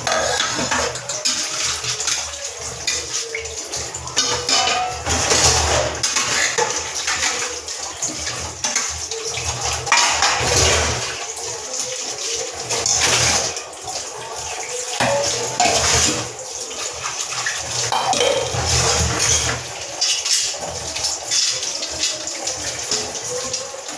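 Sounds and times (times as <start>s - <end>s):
metal dishes clinking: 0.0s - 9.0s, 9.8s - 11.0s, 15.0s - 16.3s, 17.9s - 22.2s
scrubbing dishes: 0.0s - 23.9s
tap water running into sink: 0.0s - 23.9s.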